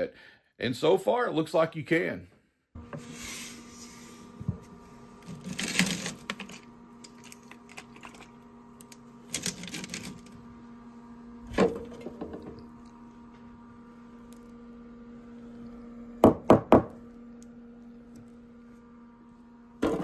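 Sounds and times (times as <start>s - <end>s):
faint steady hum: 2.8s - 20.0s.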